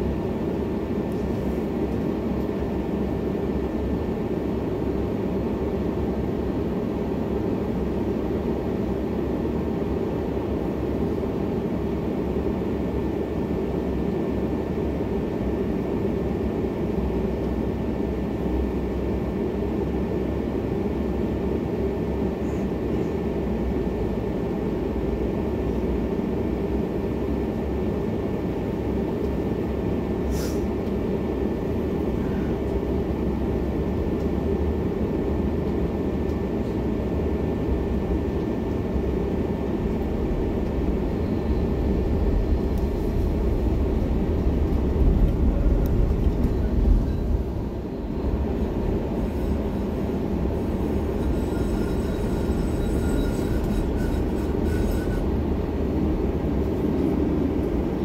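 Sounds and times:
tram interior low drone: 0.0s - 58.0s
faint high whine: 45.5s - 55.4s.

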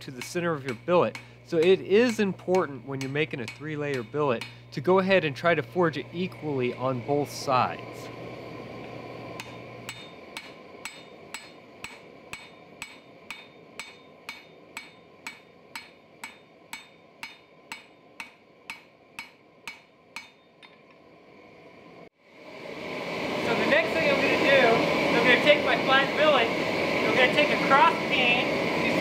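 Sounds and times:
hammer striking hot steel on anvil: 0.0s - 5.5s, 9.4s - 21.0s.

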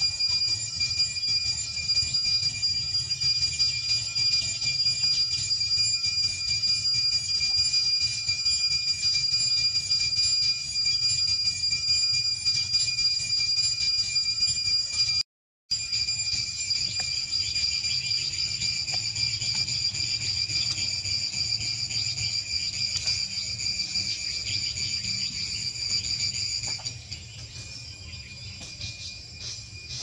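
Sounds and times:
insect chorus drone: 0.0s - 8.4s, 15.8s - 30.0s.

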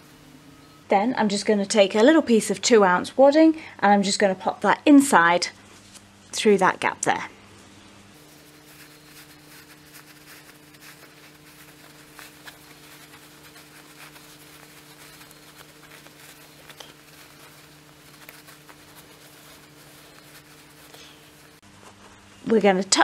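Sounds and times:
low electrical hum: 0.0s - 23.0s
fabric rustling: 8.2s - 22.2s.

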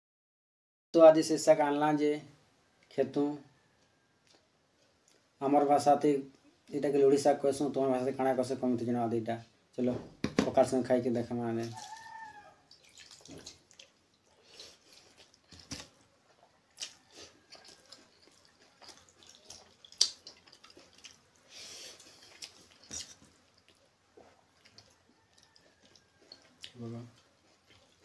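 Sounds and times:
wet rice squelching: 11.6s - 24.9s.

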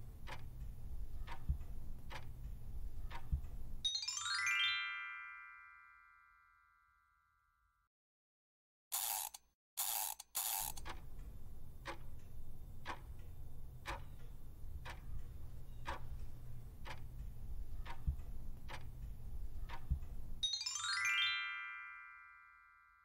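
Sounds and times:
clock ticking: 0.0s - 3.9s, 9.3s - 20.4s.

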